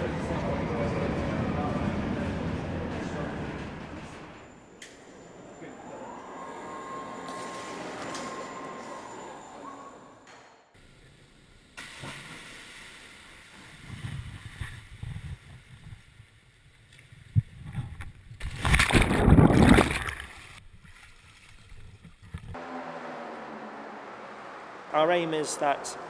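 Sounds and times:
water splashing and sloshing: 0:11.8 - 0:22.6.

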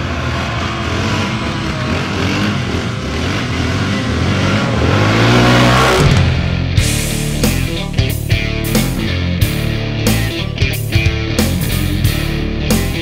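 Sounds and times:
quad engines revving: 0:00.0 - 0:13.0.

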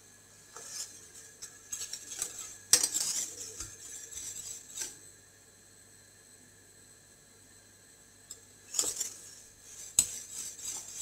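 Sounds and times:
whisk clinking in metal pot: 0:00.6 - 0:05.0, 0:08.7 - 0:11.0.

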